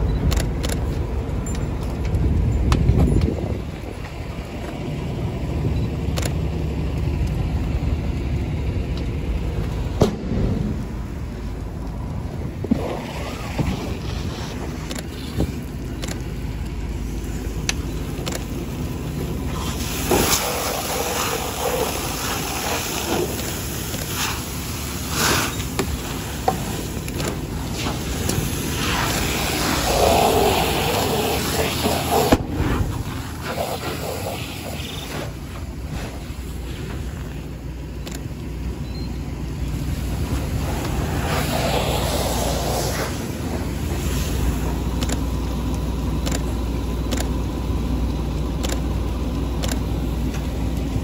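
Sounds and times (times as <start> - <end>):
low rumble of fire: 0.0 - 51.0
fire hose hissing rush: 8.4 - 38.7, 39.5 - 47.0
fire pops and cracks: 8.9 - 16.7, 19.5 - 29.9.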